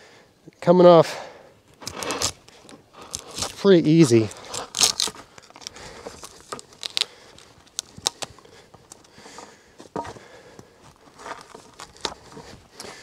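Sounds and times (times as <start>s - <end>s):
knife carving wood: 1.8s - 3.6s, 4.3s - 7.1s.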